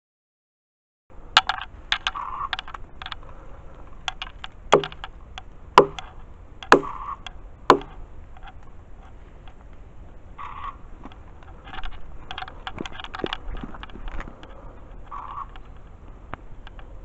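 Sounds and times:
twigs cracking and snapping: 4.0s - 7.1s, 10.5s - 14.5s.

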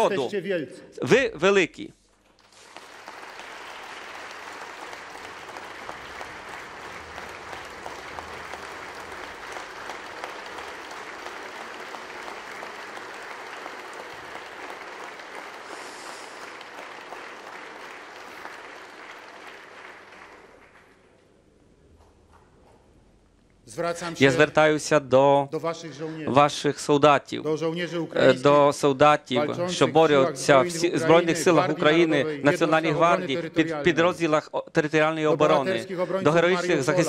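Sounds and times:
crowd applauding: 2.3s - 21.4s.

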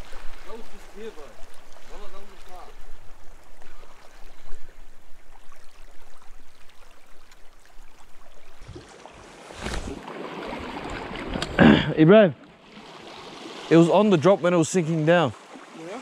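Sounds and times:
small waves lapping on rocks: 12.5s - 16.0s.

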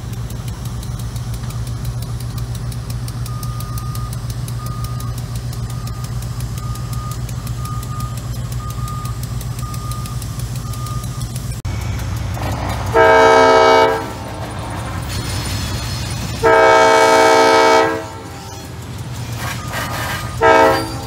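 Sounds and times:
diesel locomotive drone: 0.0s - 21.0s
crossing bell dinging: 15.6s - 21.0s.

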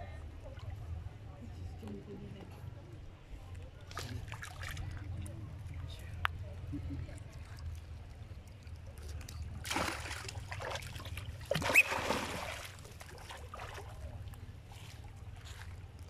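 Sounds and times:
monkeys splashing in water: 7.2s - 15.4s.

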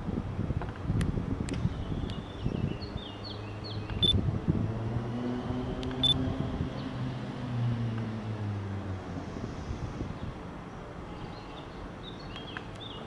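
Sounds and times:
birds chirping: 1.6s - 4.2s, 10.0s - 13.0s.

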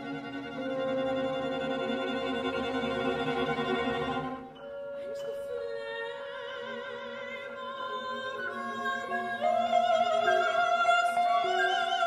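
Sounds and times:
strings and keyboards ensemble: 0.0s - 12.0s.

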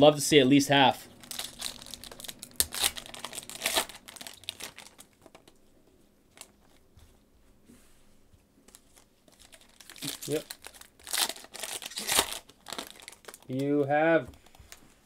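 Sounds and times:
wrapper crinkling and tearing: 1.1s - 5.6s, 8.7s - 13.8s.

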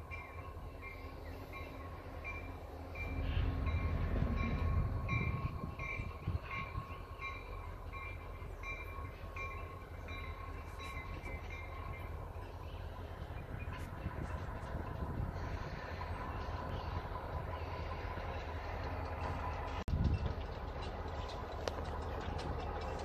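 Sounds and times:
locomotive bell ringing: 0.0s - 23.0s
locomotive engine rumble: 0.0s - 23.0s.

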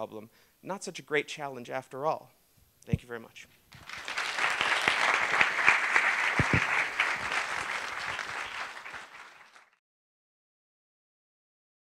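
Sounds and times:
audience applauding: 3.7s - 9.8s.

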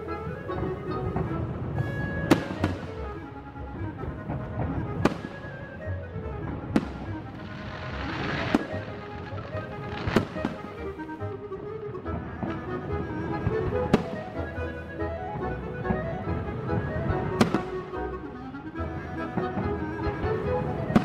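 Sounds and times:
music: 0.0s - 21.0s
hissing crackle of fireworks: 6.8s - 10.7s.

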